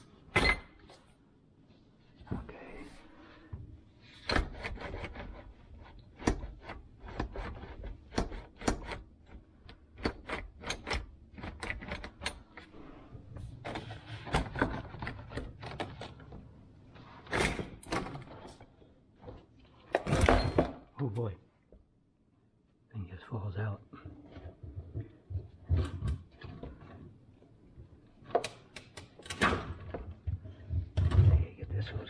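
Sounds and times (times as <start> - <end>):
plastic parts clicking and knocking: 4.1 - 12.7, 13.6 - 16.5.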